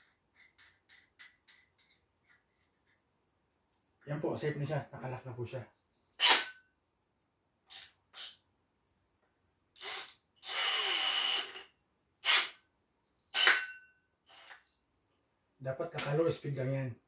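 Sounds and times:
drill whine: 9.9 - 12.6, 13.3 - 14.6.

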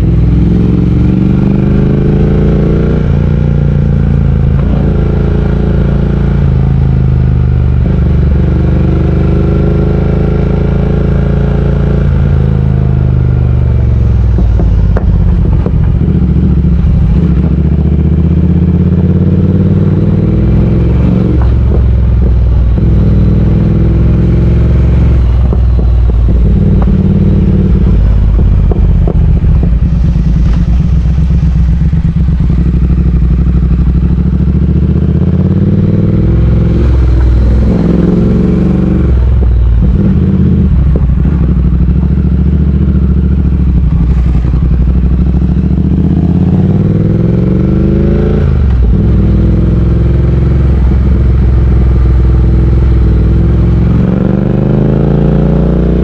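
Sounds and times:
motorcycle engine running: 0.0 - 56.0
rapid crackling and knocking: 14.1 - 17.5.

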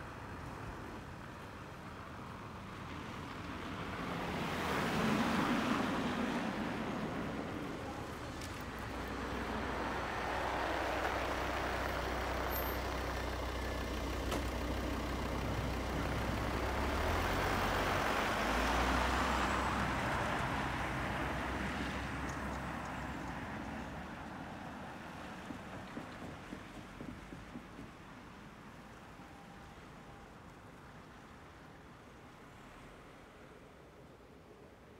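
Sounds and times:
cars pulling away: 2.2 - 28.1.

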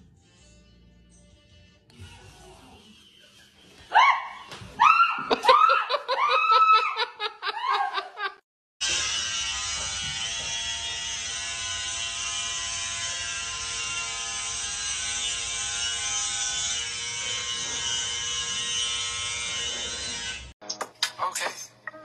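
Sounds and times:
electric hair clippers buzzing: 8.8 - 20.5.

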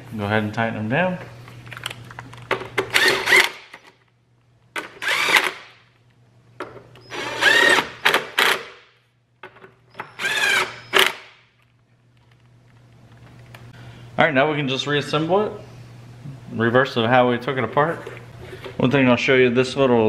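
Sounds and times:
cordless driver motor running: 5.0 - 5.5, 7.1 - 7.9, 10.2 - 10.8.

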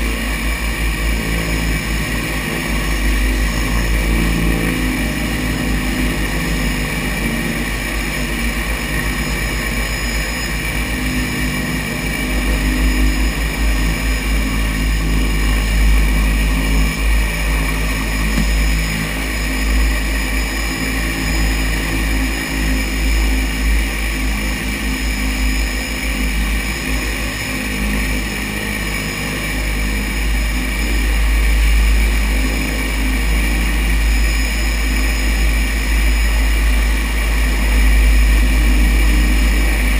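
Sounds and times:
propeller engines running: 0.0 - 39.9.

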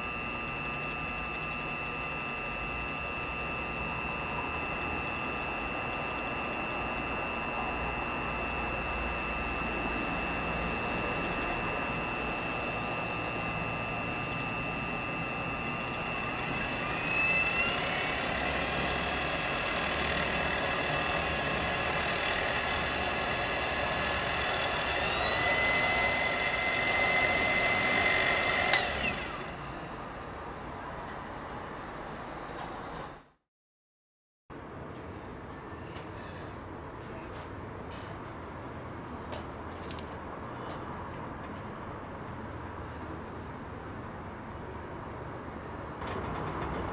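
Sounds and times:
lathe motor whining: 0.0 - 29.8.

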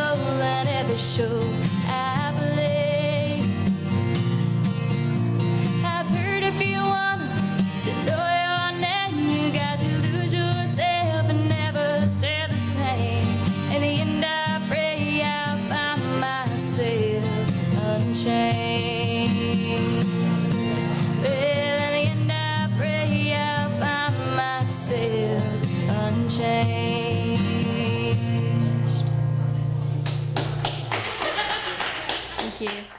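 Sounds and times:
woman singing into a microphone: 0.0 - 3.6, 5.8 - 20.2, 21.1 - 29.0
strummed acoustic guitar: 0.0 - 30.3.

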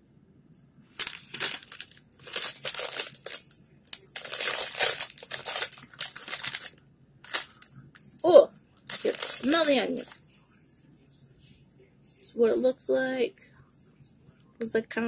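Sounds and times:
crisp packet crinkling: 0.9 - 8.2, 8.8 - 10.2.

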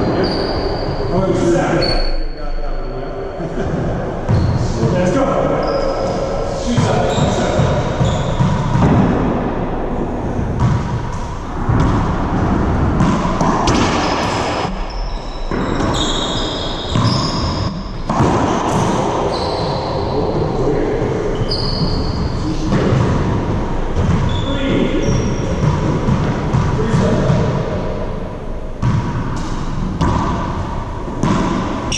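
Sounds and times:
sneakers squeaking on floor: 0.0 - 9.2, 10.5 - 20.4, 21.3 - 27.4
ball bouncing off floor and walls: 6.8 - 9.4, 10.4 - 14.8, 16.9 - 19.3, 28.8 - 31.9.

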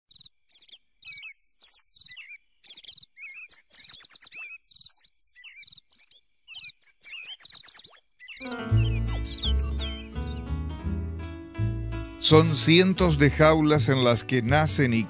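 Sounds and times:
finches chirping: 0.1 - 10.6.

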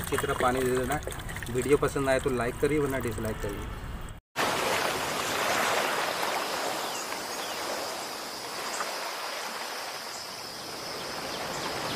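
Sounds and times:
sea surf washing in: 4.4 - 11.9.

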